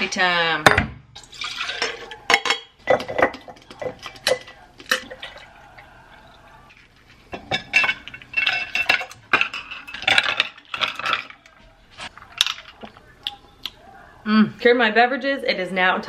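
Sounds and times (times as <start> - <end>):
straw stirring drink: 1.2 - 13.8
ice cubes clinking on glass: 6.2 - 11.6.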